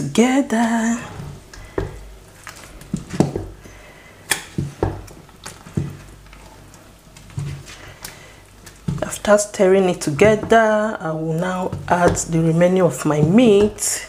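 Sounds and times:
spatula stirring slimy soup: 0.2 - 14.0
spatula knocking metal pot: 10.0 - 14.0.

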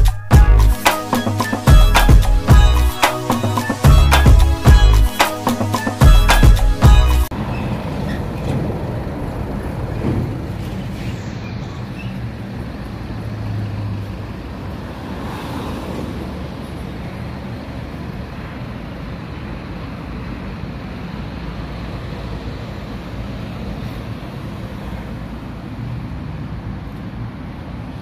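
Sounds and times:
low rumble of road vehicles: 6.9 - 28.0.

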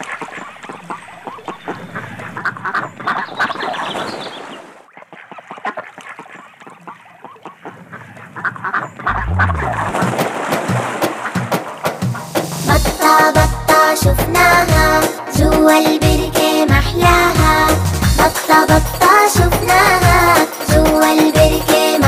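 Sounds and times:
ducks quacking: 0.0 - 22.0
low pitched tone: 9.1 - 9.9.

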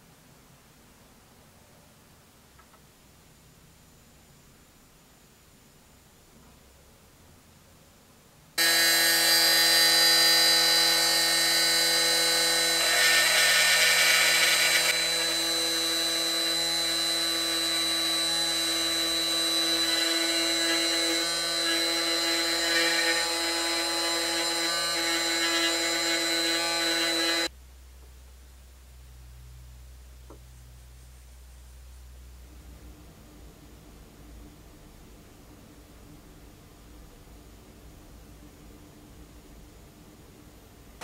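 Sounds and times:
harsh grinding hiss on steel: 8.6 - 16.1
rotary tool high-pitched whine: 8.6 - 27.5.

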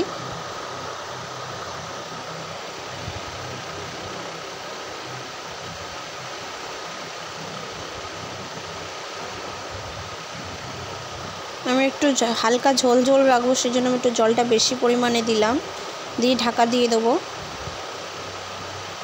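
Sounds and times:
faint high hum: 0.0 - 19.0
steady hiss: 0.0 - 19.0.

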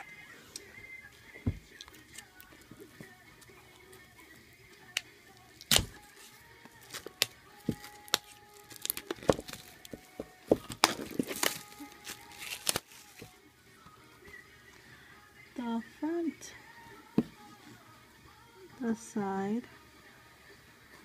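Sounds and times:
plastic wrapping crackling: 5.6 - 13.4.

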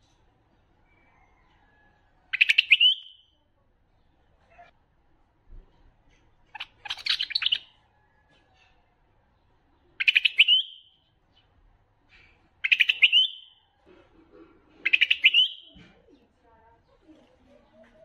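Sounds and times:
bird singing: 2.3 - 3.3, 6.5 - 7.8, 9.4 - 11.6, 12.6 - 13.7, 14.8 - 16.3.

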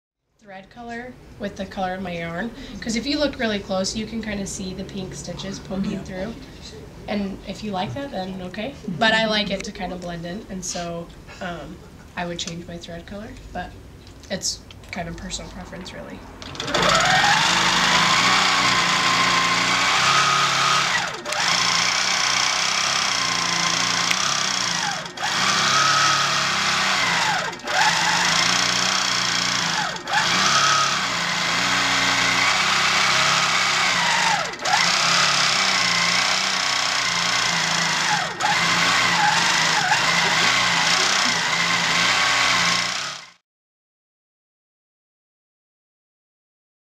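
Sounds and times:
quilting machine stitching: 16.4 - 43.4.

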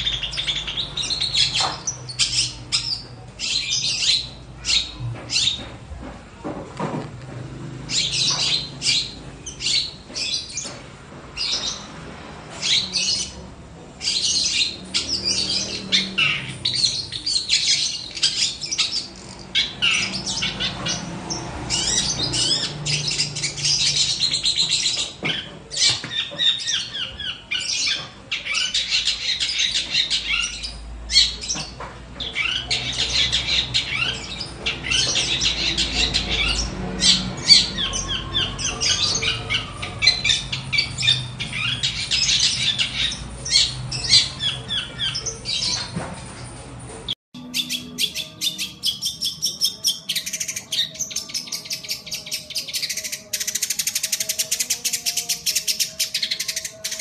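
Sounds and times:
shrike singing with harsh chatter: 0.0 - 57.0.

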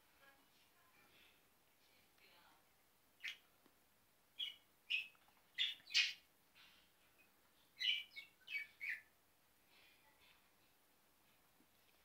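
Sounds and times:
budgerigar chirping: 3.2 - 3.4, 4.4 - 6.2, 7.8 - 9.1.

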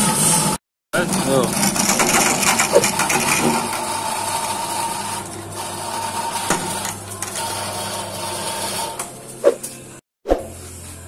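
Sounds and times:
potato peeling machine humming: 1.0 - 9.4.

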